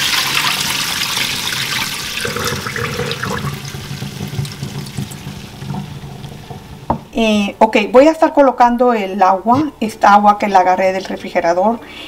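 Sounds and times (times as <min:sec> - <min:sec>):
water pouring into a sink: 0:00.0 - 0:06.8.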